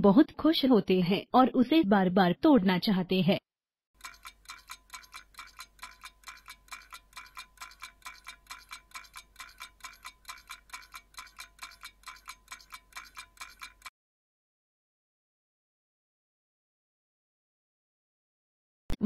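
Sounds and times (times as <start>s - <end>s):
rapid timer ticks with chime: 4.0s - 13.9s.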